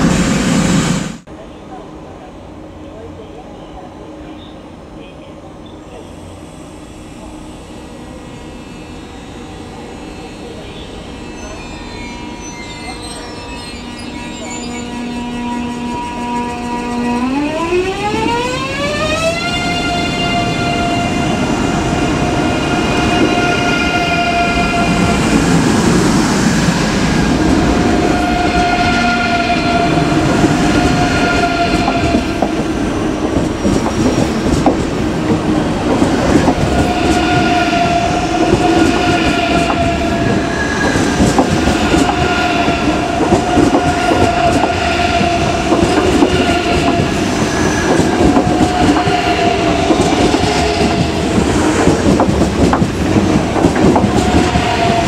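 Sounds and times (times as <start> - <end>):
electric train traction whine: 0.0 - 55.0
wheel-on-rail noise: 29.8 - 55.0.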